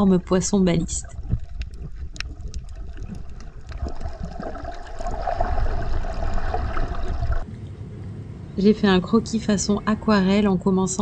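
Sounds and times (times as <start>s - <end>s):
muffled underwater rumble: 0.0s - 7.5s
water hissing and gurgling: 1.1s - 7.4s.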